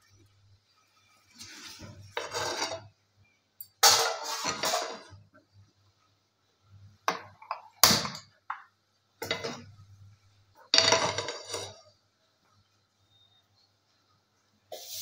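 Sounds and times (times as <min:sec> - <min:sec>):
frying pan clattering on grate: 0:03.8 - 0:05.2, 0:09.2 - 0:09.8, 0:10.7 - 0:11.8.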